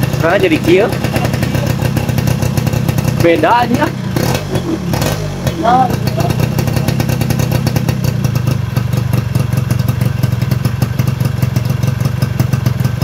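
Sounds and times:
two-stroke motorcycle engine idling: 0.0s - 13.0s.

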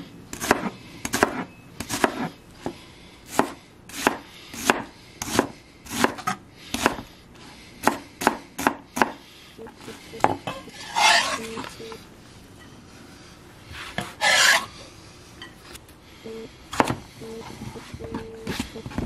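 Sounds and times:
knife blade scraping board: 0.3s - 2.3s, 10.5s - 11.7s, 13.8s - 14.7s
knife chopping onion on board: 0.3s - 7.1s, 7.8s - 9.2s, 16.8s - 17.0s.

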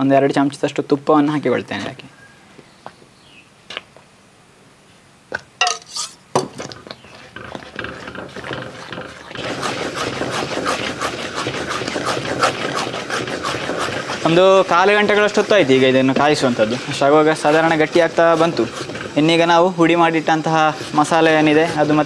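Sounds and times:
scraping and squelching paste: 5.8s - 22.0s
wooden spatula knocking pot: 6.4s - 22.0s.

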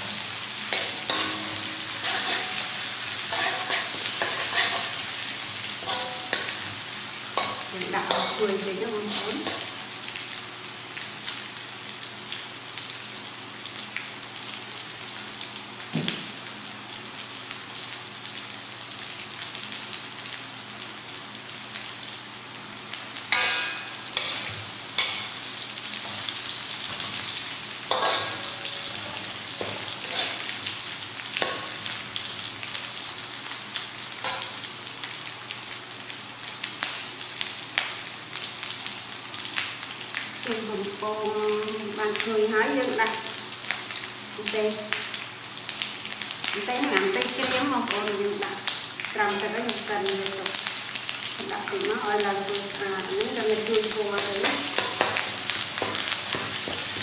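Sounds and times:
food sizzling in hot oil: 0.0s - 57.0s
metal spatula scraping wok: 0.7s - 5.1s, 5.8s - 6.7s, 23.2s - 25.3s, 27.9s - 30.6s.

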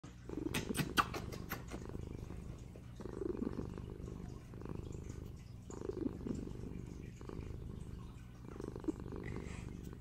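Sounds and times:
kitten purring: 0.0s - 10.0s
quick kissing smacks: 0.4s - 1.8s.

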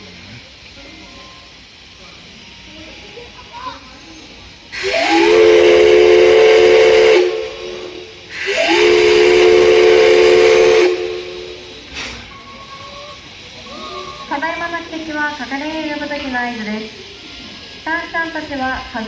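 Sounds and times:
steam hissing: 0.0s - 19.0s
steam whistle blasts: 4.7s - 12.8s.

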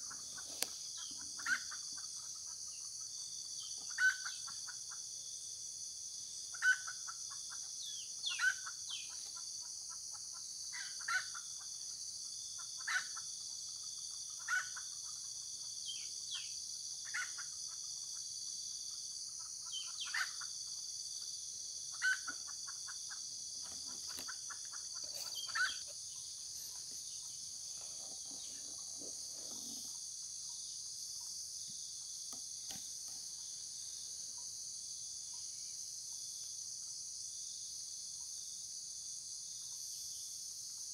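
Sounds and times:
junglefowl clucking: 0.0s - 2.6s, 3.8s - 5.0s, 8.3s - 11.6s, 12.6s - 13.2s, 14.4s - 15.2s, 19.4s - 20.5s, 21.9s - 30.0s
high drone of insects: 0.0s - 40.9s.

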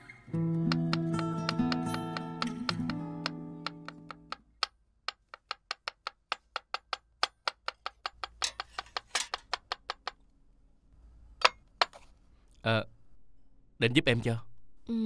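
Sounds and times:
cleaver chopping on cutting board: 0.7s - 4.4s.

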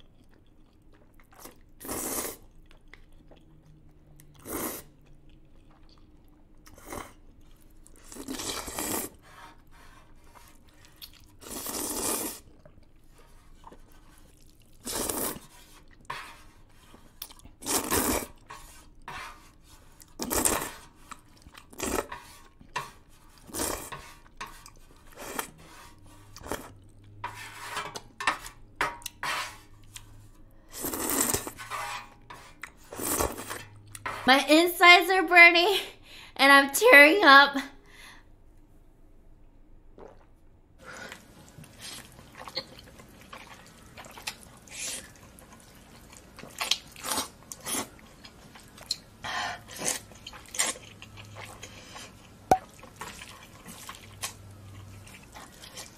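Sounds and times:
noodles slurped and chewed: 0.0s - 31.6s, 32.2s - 34.0s, 40.0s - 55.9s.

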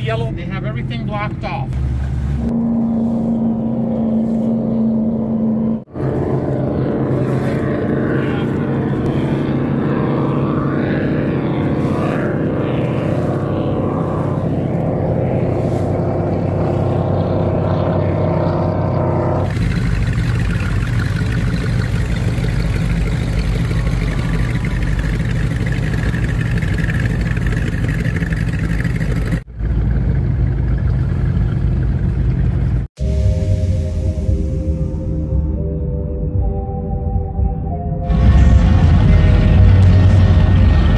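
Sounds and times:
powerboat engine drone: 0.0s - 40.9s
powerboat idling rumble: 19.5s - 32.9s.

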